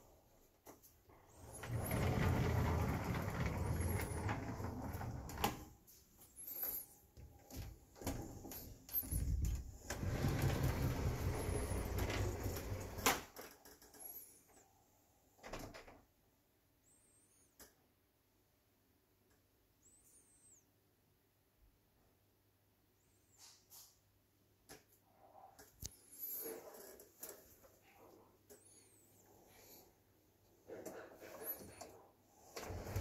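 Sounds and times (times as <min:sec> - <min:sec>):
faint squeaks: 0:01.3 - 0:05.5, 0:06.2 - 0:13.0, 0:30.6 - 0:33.0
sliding door rolling on track: 0:01.4 - 0:05.6, 0:09.2 - 0:13.1, 0:32.4 - 0:33.0.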